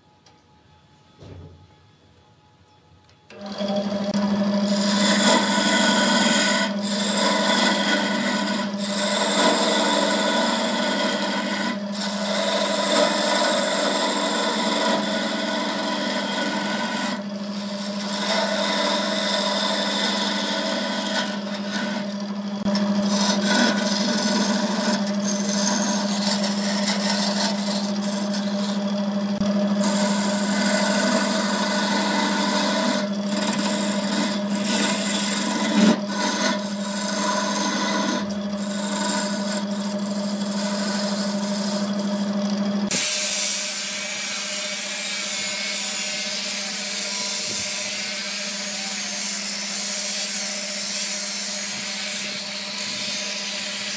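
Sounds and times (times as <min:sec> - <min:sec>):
tool scraping spinning wood: 0:03.3 - 0:53.9
wood lathe motor hum: 0:03.3 - 0:53.9.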